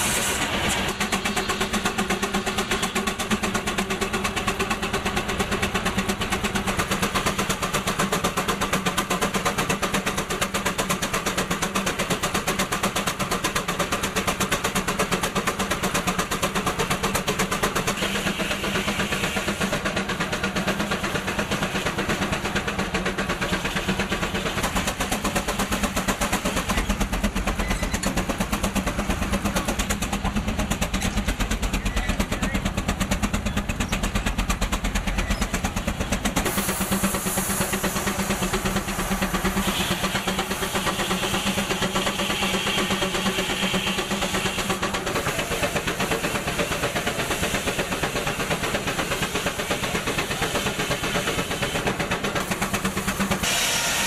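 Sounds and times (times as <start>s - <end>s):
steam engine exhaust beating: 0.0s - 54.0s.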